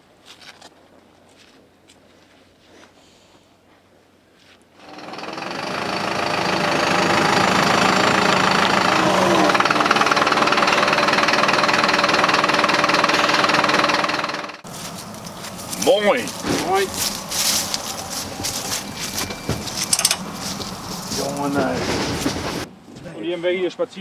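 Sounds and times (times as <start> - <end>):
diesel engine idling: 4.8 - 22.7.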